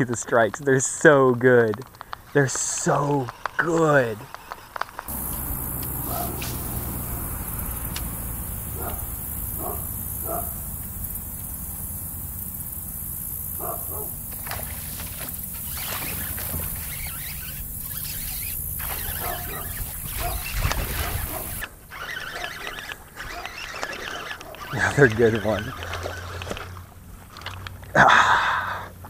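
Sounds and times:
scratchy noises: 1.8s - 11.2s, 13.5s - 26.8s
steady low rumble: 5.1s - 15.6s
distant dog barking: 5.9s - 10.8s, 13.5s - 14.2s, 19.0s - 21.6s, 22.2s - 25.8s.

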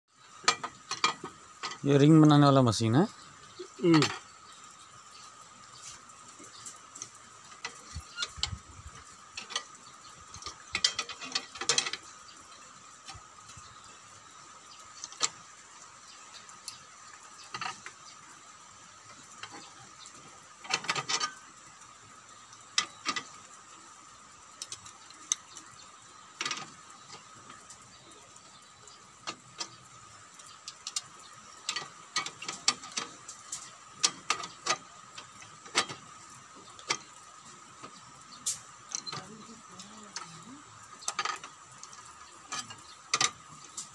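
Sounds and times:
metallic clanks of bending machine: 0.4s - 1.9s, 7.5s - 12.2s, 30.8s - 37.2s.

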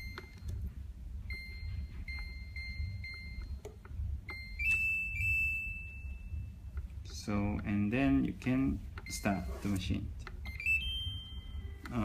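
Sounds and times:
keypad beeps: 1.3s - 5.9s, 9.0s - 9.5s, 10.4s - 11.9s.

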